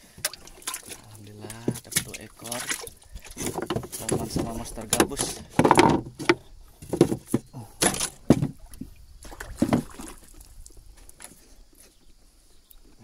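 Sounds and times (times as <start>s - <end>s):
knocks and thumps: 0.2s - 10.2s.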